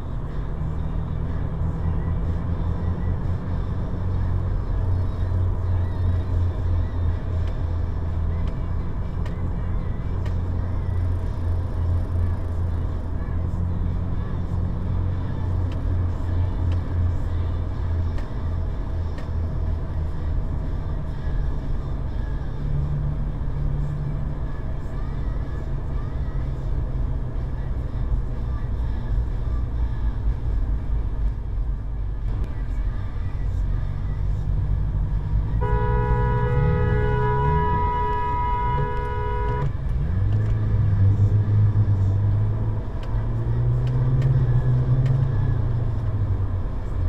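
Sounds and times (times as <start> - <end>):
car engine and road drone: 0.0 - 47.0
car horn blast: 35.6 - 39.8.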